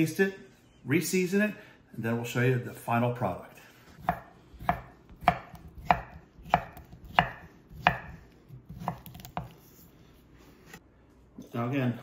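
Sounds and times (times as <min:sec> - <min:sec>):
knife chopping on wooden board: 0:04.0 - 0:09.6.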